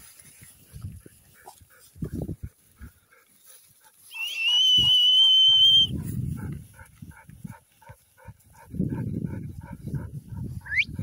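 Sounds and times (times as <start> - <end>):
long high whistle: 4.1 - 5.9.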